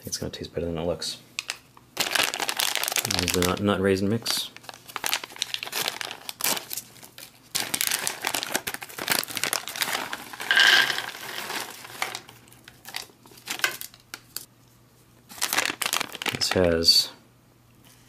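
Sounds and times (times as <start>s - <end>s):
wrapper being crumpled: 1.4s - 14.5s, 15.3s - 16.7s
plastic pouch tearing and crinkling: 2.0s - 14.5s, 15.3s - 16.7s
nuts spilling onto plastic tray: 10.4s - 12.2s.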